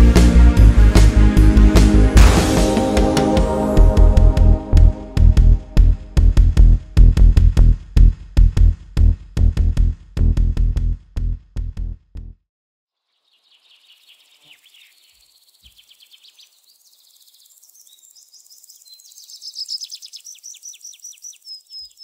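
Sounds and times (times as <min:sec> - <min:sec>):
electronic music beats: 0:00.0 - 0:12.3
bird chirps and trills: 0:13.1 - 0:22.0
insect-like chirping: 0:13.1 - 0:22.0.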